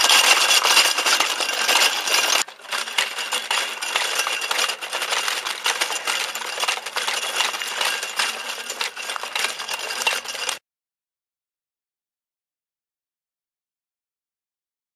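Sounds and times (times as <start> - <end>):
metal wheel-legs clattering on gravel: 0.0 - 10.6.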